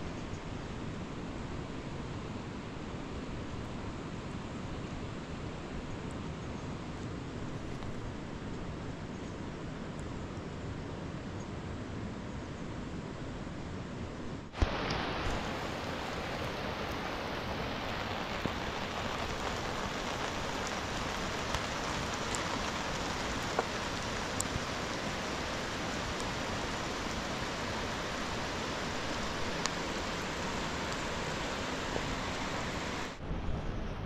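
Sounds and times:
steady rain hiss: 0.0s - 34.0s
single raindrops ticking: 14.6s - 33.2s.

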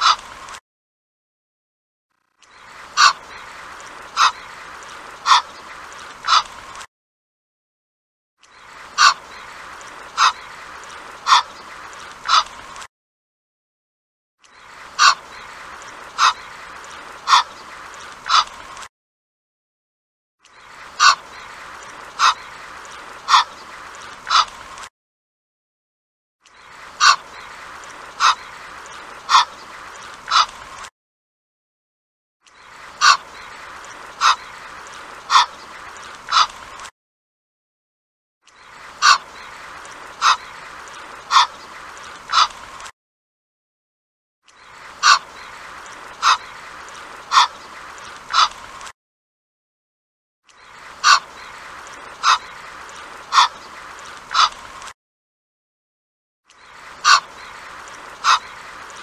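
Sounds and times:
goose calling: 3.0s - 3.3s, 4.2s - 4.5s, 5.2s - 6.5s, 9.0s - 9.2s, 10.2s - 10.5s, 11.2s - 11.6s, 12.2s - 12.5s, 15.0s - 15.4s, 16.2s - 17.6s, 21.0s - 21.3s, 22.2s - 22.5s, 23.2s - 23.6s, 24.3s - 24.5s, 27.0s - 29.6s, 30.3s - 30.6s, 33.0s - 33.5s, 34.2s - 36.6s, 39.0s - 39.6s, 40.2s - 40.6s, 41.3s - 41.6s, 42.3s - 42.6s, 45.0s - 46.5s, 47.3s - 47.6s, 48.3s - 48.6s, 51.0s - 51.6s, 52.2s - 52.6s, 53.3s - 53.6s, 54.3s - 54.6s, 57.0s - 57.6s, 58.2s - 58.6s.

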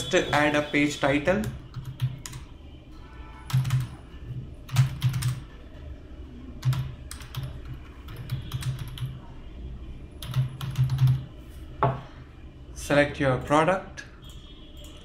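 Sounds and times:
computer keyboard typing: 1.4s - 2.5s, 3.5s - 4.0s, 4.6s - 5.5s, 6.6s - 9.2s, 10.2s - 11.3s.

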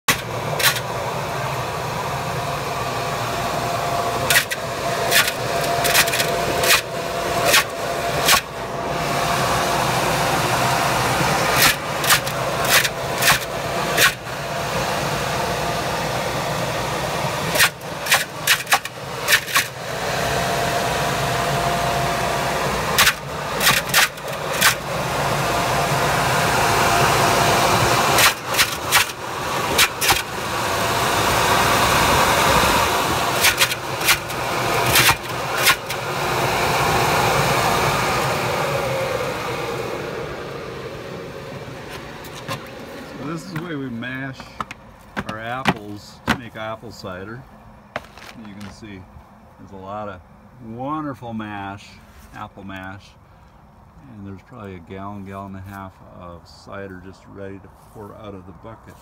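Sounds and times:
blower whine: 0.0s - 59.0s
apples smashing with sharp cracks: 4.3s - 6.9s, 11.5s - 14.2s, 17.5s - 19.8s, 23.0s - 24.8s, 28.2s - 29.2s, 29.8s - 30.3s, 33.3s - 36.0s, 44.4s - 46.6s, 47.9s - 48.8s.

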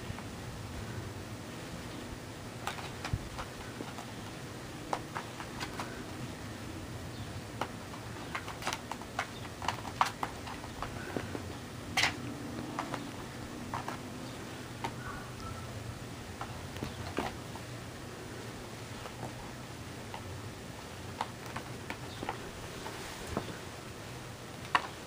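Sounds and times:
paws tapping on plastic: 2.5s - 6.3s, 7.2s - 15.5s, 16.3s - 17.7s, 18.8s - 23.6s, 24.5s - 25.0s.

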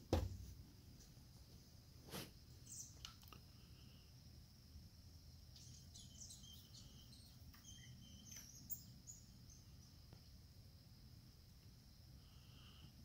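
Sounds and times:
faint bird chirps: 2.4s - 4.2s, 5.3s - 10.4s.

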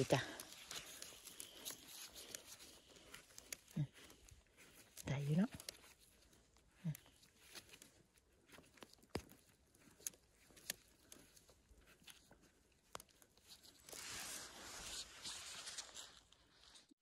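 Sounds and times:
rustle: 9.9s - 16.9s.

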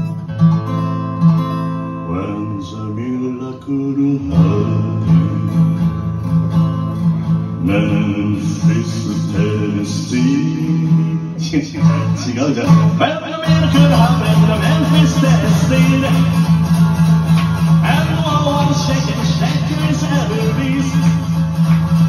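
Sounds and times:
acoustic guitar strumming: 0.0s - 22.0s
man singing into microphone: 2.1s - 5.9s, 7.6s - 16.6s, 17.8s - 21.6s.

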